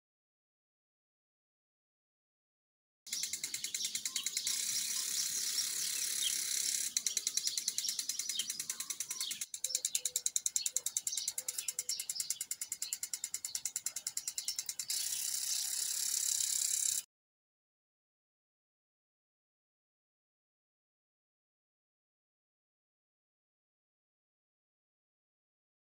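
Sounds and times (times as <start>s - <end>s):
birds chirping faintly: 3.1s - 16.9s
rapid high-pitched ticking: 3.1s - 17.1s.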